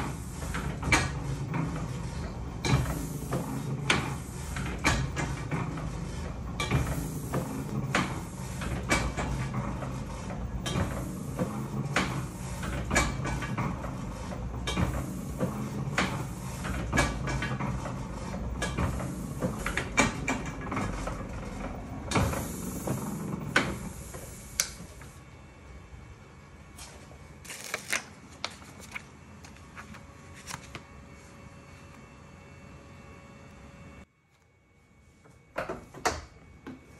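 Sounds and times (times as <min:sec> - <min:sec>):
printing press clacking: 0:00.0 - 0:24.0.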